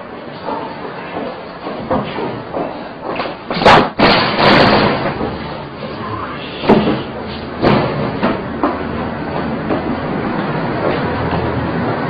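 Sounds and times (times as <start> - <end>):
loud slam: 3.6 - 5.4
loud noisy sound: 3.6 - 12.0.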